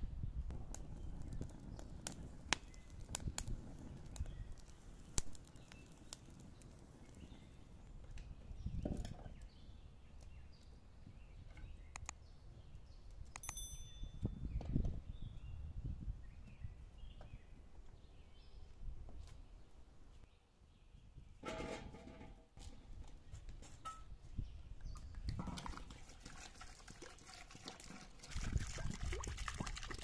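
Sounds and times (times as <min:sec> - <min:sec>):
kindling fire crackling: 0:00.5 - 0:10.8.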